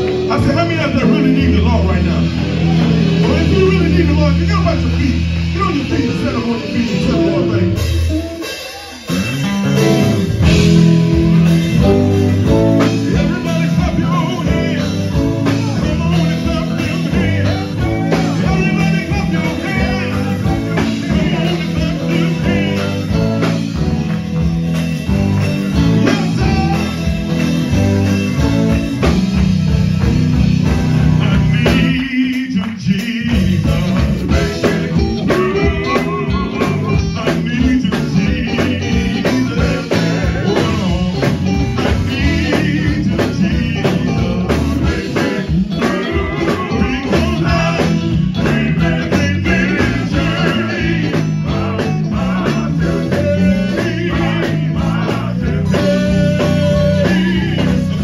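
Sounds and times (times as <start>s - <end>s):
drum kit: 0.0s - 58.0s
electric guitar: 0.0s - 58.0s
person singing into a microphone: 12.8s - 23.4s, 31.1s - 58.0s.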